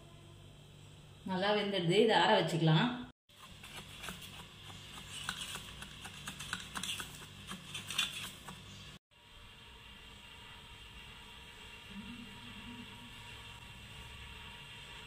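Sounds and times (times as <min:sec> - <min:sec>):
spatula scraping metal cake tin: 0:03.4 - 0:08.8.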